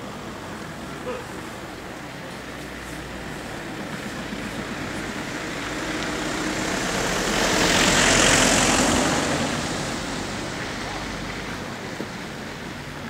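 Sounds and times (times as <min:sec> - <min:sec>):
vehicle passing close by: 0:03.0 - 0:12.8.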